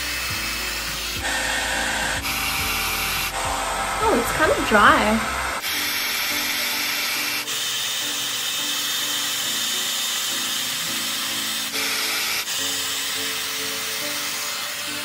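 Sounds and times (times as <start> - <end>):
faint background music: 0.0 - 15.0
hair dryer brush blowing: 0.0 - 15.0.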